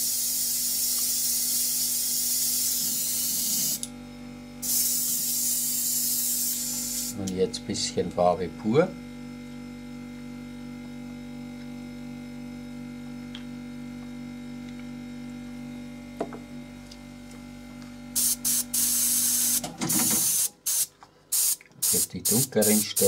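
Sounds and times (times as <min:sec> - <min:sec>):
airbrush spraying: 0:00.0 - 0:03.8, 0:04.6 - 0:07.2, 0:18.2 - 0:23.0.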